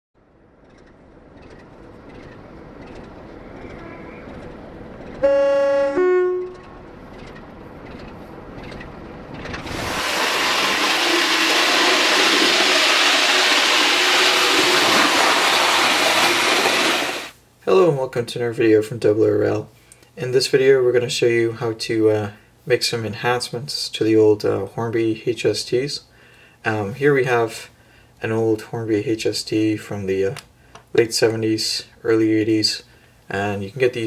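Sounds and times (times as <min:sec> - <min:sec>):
train rumble: 0:00.6 - 0:12.6
rush of passing train: 0:01.8 - 0:17.3
two-note train horn blast: 0:05.2 - 0:06.9.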